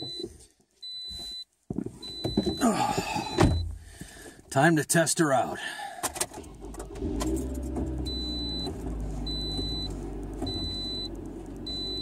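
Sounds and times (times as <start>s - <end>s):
dashboard warning chime: 0.0s - 3.7s, 8.0s - 12.0s
car engine starting and idling: 6.0s - 12.0s
ignition clicks: 6.0s - 12.0s.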